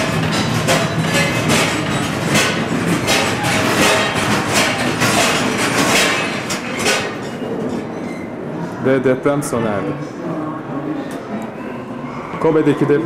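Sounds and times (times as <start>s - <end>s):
loud rattling and clattering: 0.0s - 7.9s.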